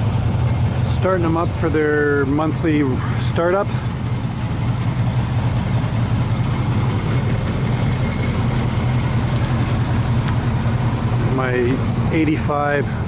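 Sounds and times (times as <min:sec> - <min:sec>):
pickup truck engine idling: 0:00.0 - 0:13.0.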